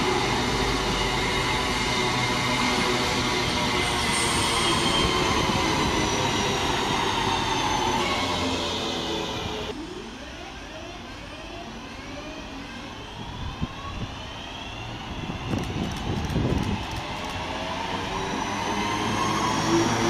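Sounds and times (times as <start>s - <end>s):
electric train motors whining: 14.8s - 20.0s
train wheels rushing on rail: 14.8s - 20.0s.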